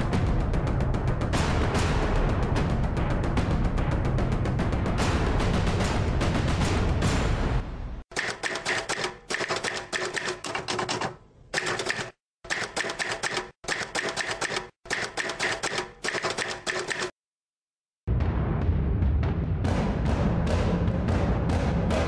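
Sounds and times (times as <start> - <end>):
typewriter key clacks: 8.1 - 17.2.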